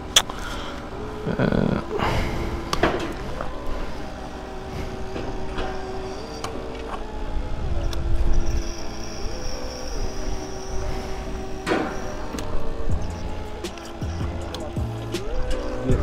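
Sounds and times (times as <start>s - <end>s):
motorcycle engine running: 12.8s - 16.0s.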